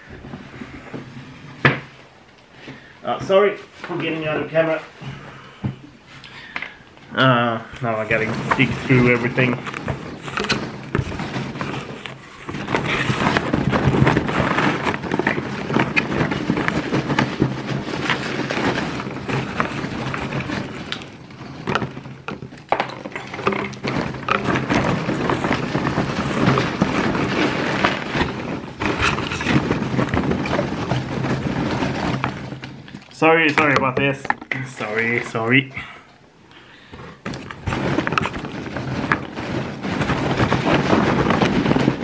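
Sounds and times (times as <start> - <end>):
packing paper rustling and crinkling: 0.0 - 42.0.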